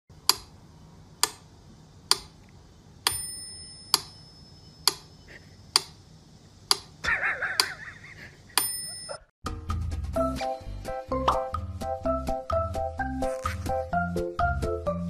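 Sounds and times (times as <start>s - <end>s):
bell-like ping: 3.1s - 4.8s, 8.6s - 9.3s.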